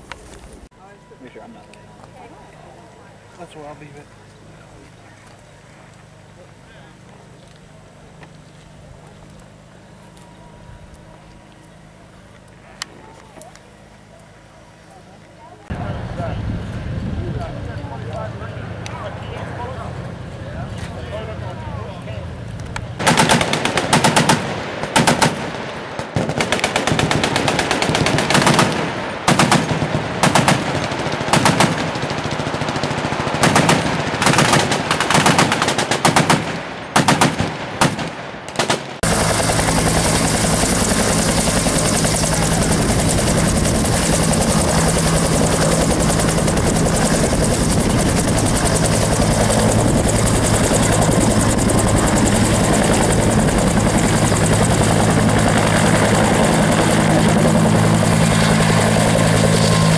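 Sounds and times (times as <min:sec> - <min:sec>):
helicopter turbine and rotor: 0:00.0 - 0:59.9
machine guns firing bursts: 0:23.0 - 0:51.4.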